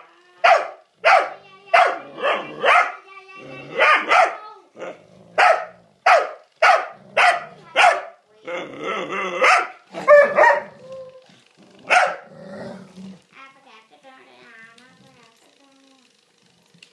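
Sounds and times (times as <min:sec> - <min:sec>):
dog barking: 0:00.4 - 0:03.0, 0:03.7 - 0:08.2, 0:09.4 - 0:10.8, 0:11.8 - 0:12.3.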